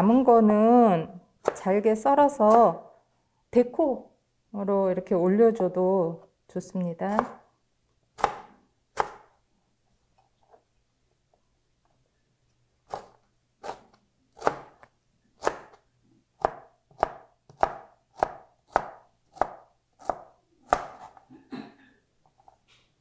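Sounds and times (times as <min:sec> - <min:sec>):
knife chopping on cutting board: 0:07.1 - 0:07.4, 0:08.2 - 0:09.3, 0:12.9 - 0:15.8, 0:16.4 - 0:21.2.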